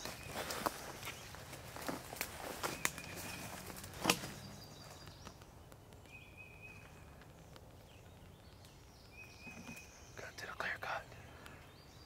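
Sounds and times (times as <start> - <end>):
footsteps crunching through leaves: 0.0 - 5.0.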